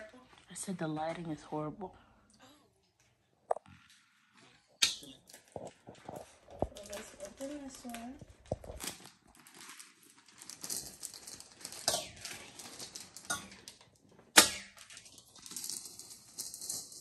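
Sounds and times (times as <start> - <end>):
wrapping paper rustling: 5.3 - 14.1.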